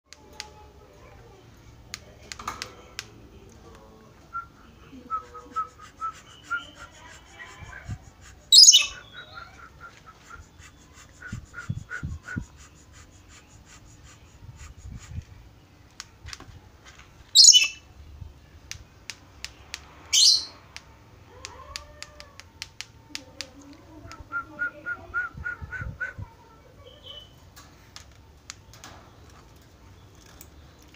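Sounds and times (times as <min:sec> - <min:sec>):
quick repeated bird chirping: 0:08.5 - 0:09.2, 0:17.4 - 0:17.8
lorikeet screeching: 0:08.5 - 0:09.4, 0:17.4 - 0:17.8, 0:20.2 - 0:20.6.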